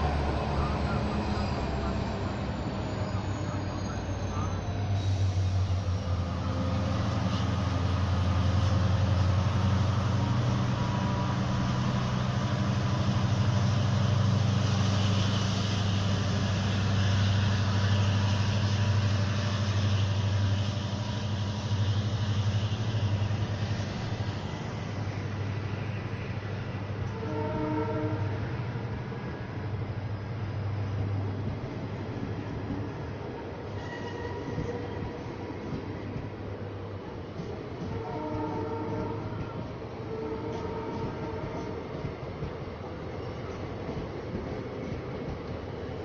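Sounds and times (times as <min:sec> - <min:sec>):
diesel locomotive engine drone: 0:00.0 - 0:46.0
locomotive horn: 0:27.0 - 0:28.5, 0:33.7 - 0:35.1, 0:37.8 - 0:41.9.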